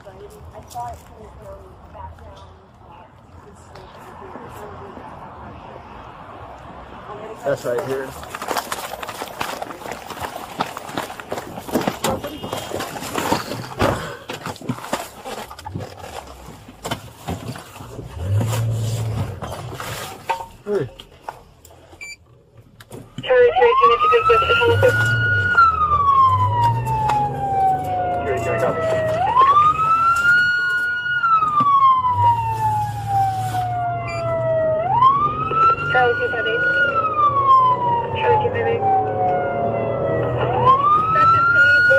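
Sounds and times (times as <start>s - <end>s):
engine and road rumble: 0.0s - 41.9s
gear knocking and rustling: 7.6s - 22.0s
police siren wailing: 23.2s - 41.9s.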